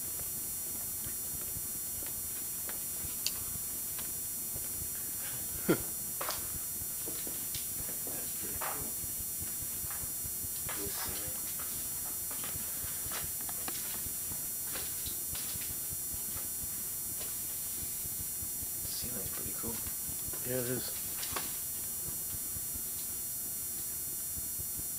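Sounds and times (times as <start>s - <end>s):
steady background hiss: 0.0s - 24.9s
footsteps: 6.2s - 16.5s.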